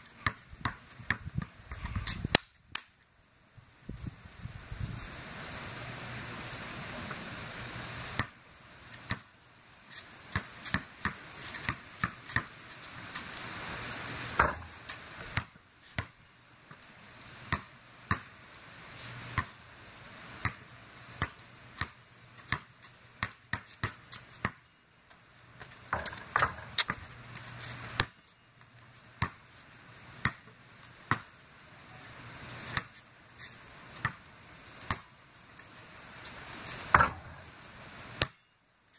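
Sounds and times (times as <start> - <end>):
basketball bouncing on concrete: 0.2 - 2.4, 8.2 - 8.4, 9.0 - 9.3, 10.3 - 12.6, 14.4 - 14.7, 15.4 - 16.2, 17.5 - 18.3, 19.4 - 19.6, 21.2 - 24.7, 25.6 - 27.2, 28.0 - 28.2, 29.2 - 29.4, 30.2 - 31.3, 32.7 - 33.0, 34.0 - 34.2, 34.9 - 35.1, 36.9 - 37.4, 38.2 - 38.5.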